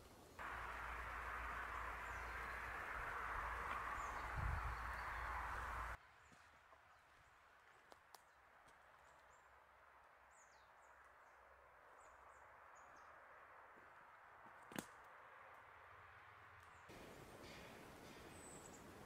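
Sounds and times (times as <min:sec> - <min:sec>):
faint steady hiss: 0:00.0 - 0:06.3, 0:16.5 - 0:19.0.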